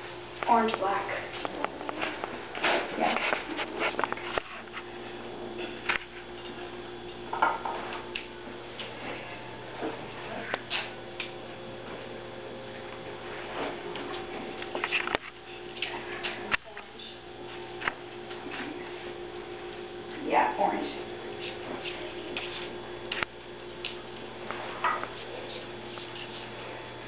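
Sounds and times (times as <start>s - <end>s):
low room hum: 0.0s - 27.0s
puppies scuffling on paper: 0.8s - 4.6s.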